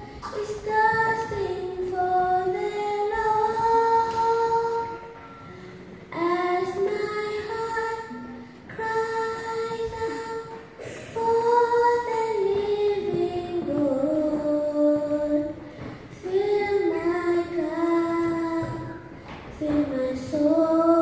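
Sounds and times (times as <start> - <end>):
girl singing into microphone: 0.0 - 21.0
breaths: 5.4 - 5.9, 10.8 - 11.2, 15.6 - 16.1.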